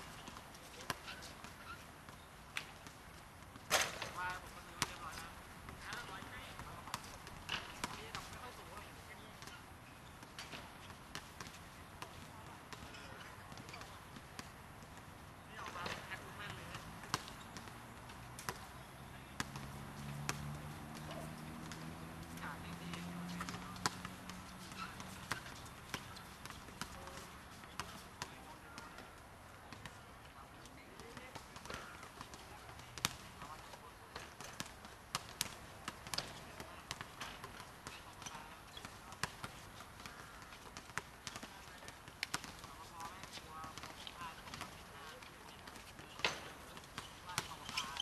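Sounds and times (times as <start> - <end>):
basketball bouncing on hard court: 15.6 - 29.1, 30.9 - 48.0.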